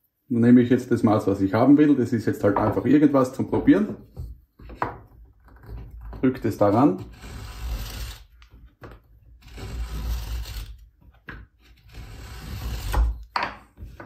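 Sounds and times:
marking gauge scratching wood: 6.4 - 8.4, 9.4 - 10.9, 11.6 - 13.3.

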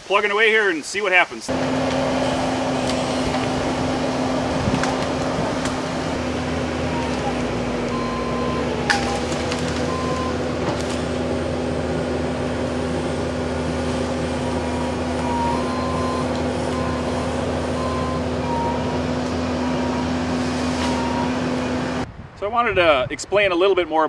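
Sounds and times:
diesel engine running under load: 1.5 - 22.1
sharp crack: 4.5 - 6.2, 8.8 - 11.3.

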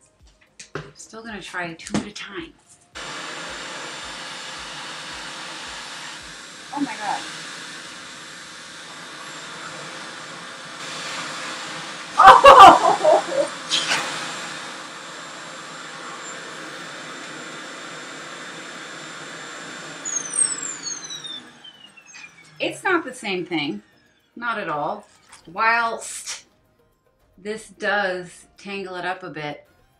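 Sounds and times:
high motor whine: 2.9 - 25.6
vacuum rush of air: 3.0 - 20.9.

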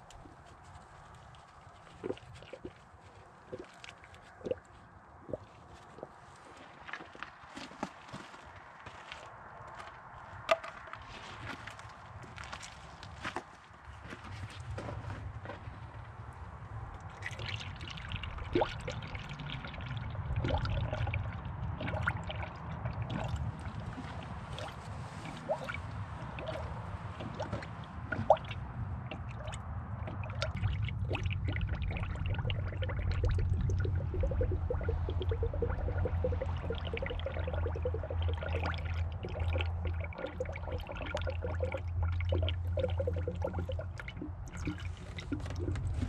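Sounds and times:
low steady hum: 14.6 - 46.0
liquid pouring and gurgling: 16.9 - 46.0.

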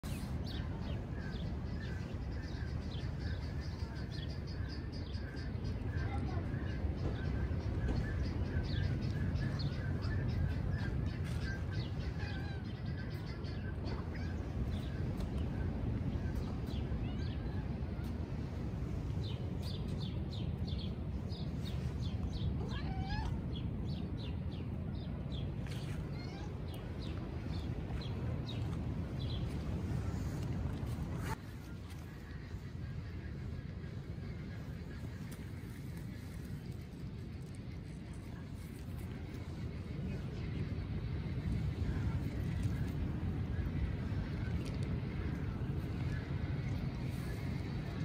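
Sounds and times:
small birds chirping: 0.0 - 48.0
steady low rumble: 0.0 - 48.0
cat meowing: 22.6 - 23.4, 26.1 - 26.6.

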